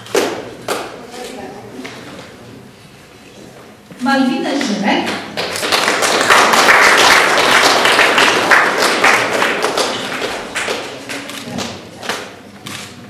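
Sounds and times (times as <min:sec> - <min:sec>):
audience applauding: 0:05.3 - 0:11.8.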